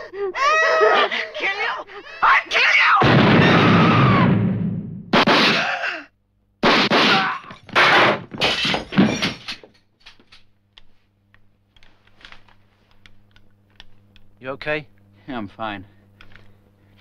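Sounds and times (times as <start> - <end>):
faint clicks and knocks: 10.0 - 14.4.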